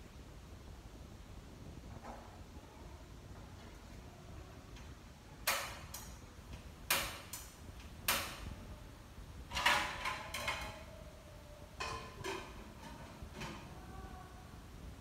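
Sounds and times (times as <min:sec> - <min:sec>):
kitchenware clatter with metallic ring: 0:09.5 - 0:10.9, 0:11.8 - 0:13.7
pots and utensils clacking: 0:09.5 - 0:11.0, 0:11.8 - 0:13.8.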